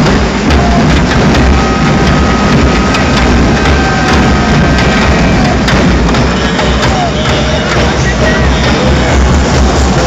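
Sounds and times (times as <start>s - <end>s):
dense crowd noise: 0.0s - 10.0s
drums beating: 0.0s - 10.0s.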